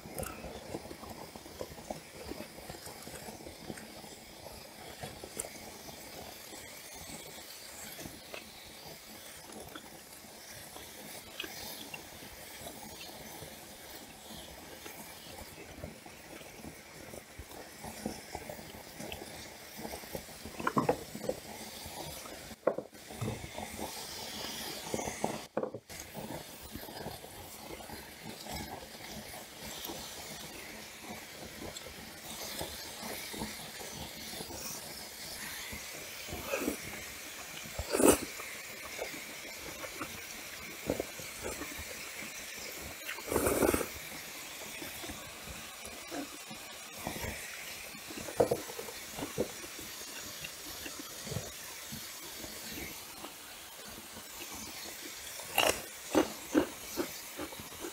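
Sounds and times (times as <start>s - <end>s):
slurping noodles: 0.0s - 57.9s
steady hiss: 0.0s - 57.9s
chewing: 11.0s - 14.1s, 36.2s - 44.1s, 54.2s - 57.9s.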